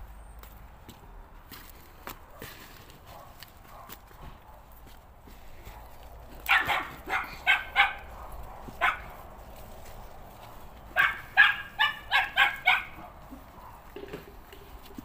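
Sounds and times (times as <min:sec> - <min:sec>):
dog barking: 0:02.3 - 0:04.7, 0:05.6 - 0:09.2, 0:10.9 - 0:14.0.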